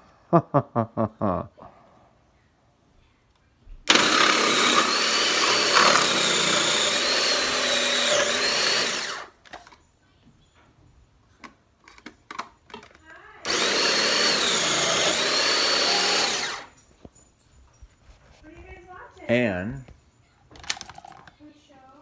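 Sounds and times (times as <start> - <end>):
food processor grinding: 3.9 - 9.4, 13.4 - 16.7.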